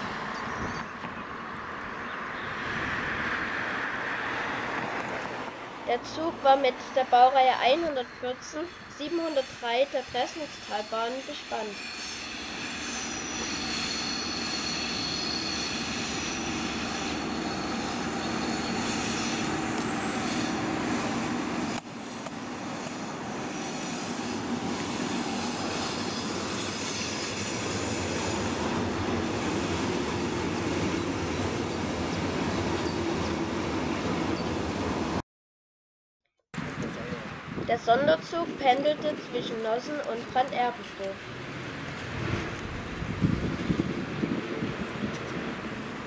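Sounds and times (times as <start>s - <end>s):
locomotive diesel engine: 0.0s - 35.2s
train wheels rumbling on rails: 9.1s - 35.2s, 36.6s - 46.0s.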